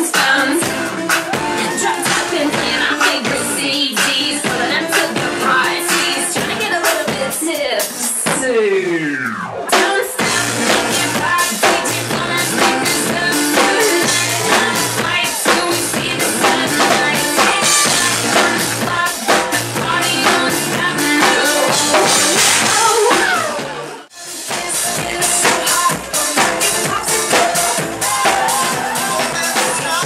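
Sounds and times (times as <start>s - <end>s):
drum kit playing: 0.0s - 30.0s
dance track with bass line: 8.3s - 30.0s.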